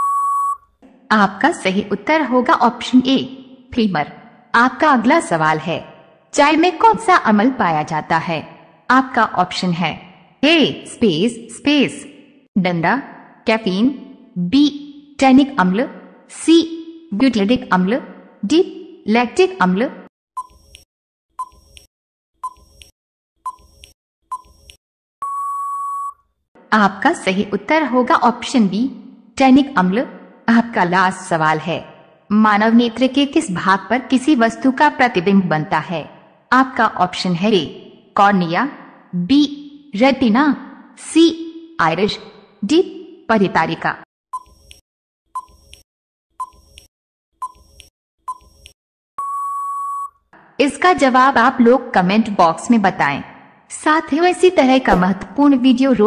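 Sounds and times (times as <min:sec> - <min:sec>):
short timer beeps: 0:00.0 - 0:00.6
long steady beep: 0:00.0 - 0:00.7, 0:25.2 - 0:26.2, 0:49.2 - 0:50.2.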